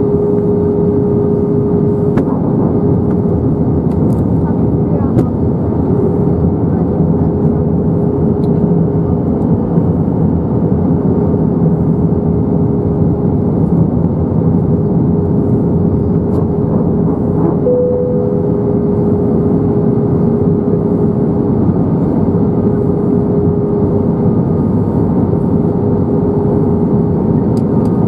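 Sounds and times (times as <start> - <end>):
thin steady hum: 0.0 - 3.7, 15.2 - 27.3
jet engines droning: 0.0 - 28.0.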